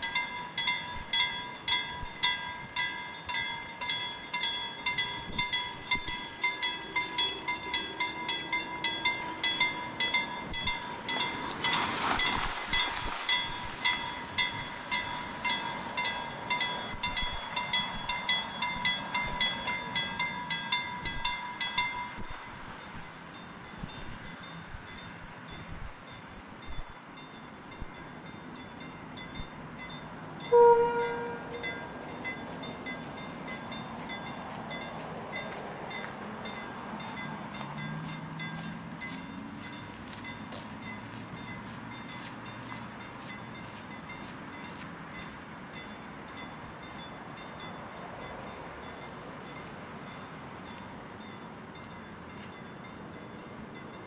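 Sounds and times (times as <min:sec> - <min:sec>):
level crossing bell ringing: 0:00.0 - 0:22.2
train horn blast: 0:30.5 - 0:31.9.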